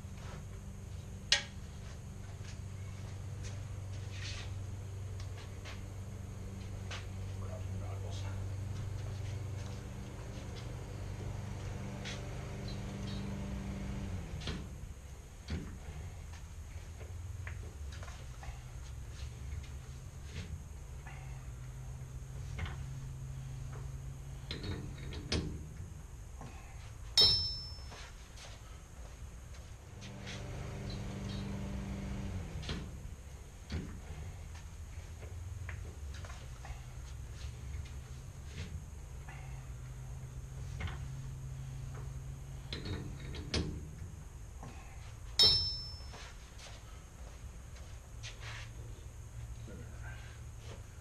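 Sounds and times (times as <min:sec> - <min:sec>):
low steady hum: 0:00.0 - 0:51.0
metal clicks and clanks: 0:24.4 - 0:25.7, 0:42.6 - 0:43.9
loud ringing clank: 0:27.2 - 0:28.0, 0:45.4 - 0:46.4
metal tool knocks: 0:45.4 - 0:46.0.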